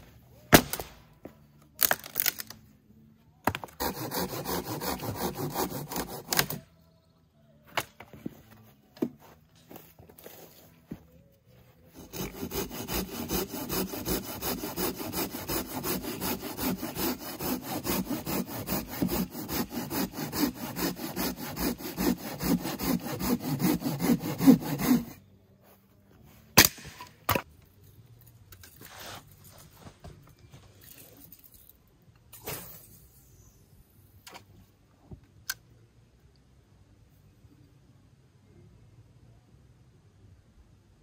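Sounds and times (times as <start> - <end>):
hand saw cutting wood: 3.8 - 6.6, 11.9 - 25.2.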